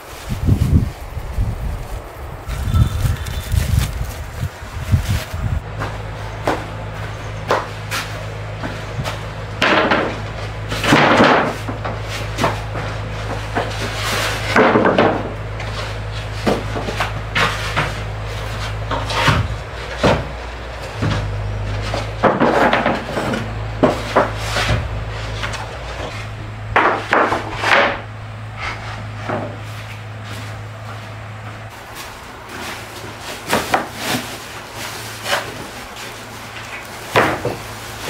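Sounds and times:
steady low hum: 0.0 - 38.0
wooden planks knocking: 8.6 - 15.8, 16.4 - 28.1, 35.2 - 37.7.

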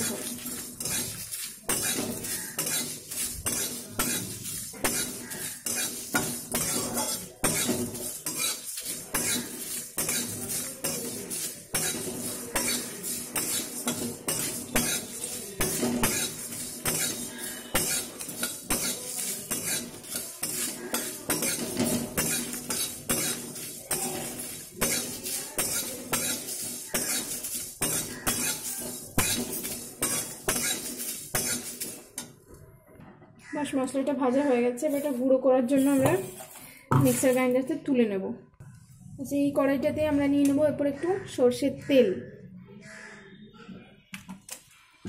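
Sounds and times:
metal spatula scraping steel pan: 0.0 - 32.4, 34.7 - 37.6.

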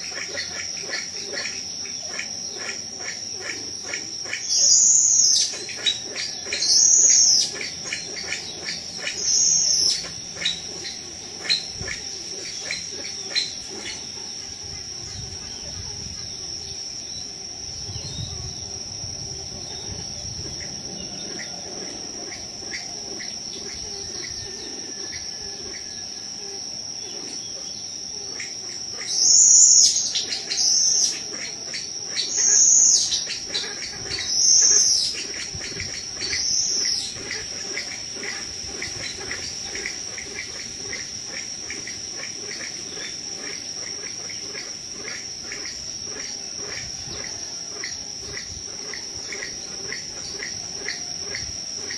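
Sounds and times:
high-pitched insect chorus: 0.0 - 51.9.

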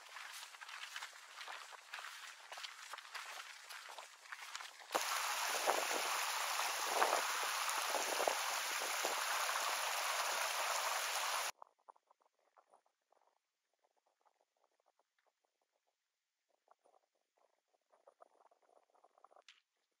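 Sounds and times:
stream rushing over stones: 5.0 - 11.5.

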